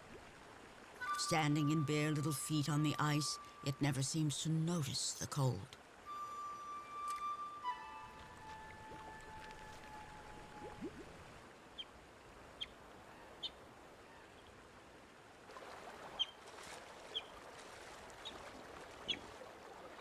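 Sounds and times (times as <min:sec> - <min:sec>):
held music note: 0:06.1 - 0:10.9
river water rushing: 0:07.3 - 0:11.6, 0:15.4 - 0:20.0.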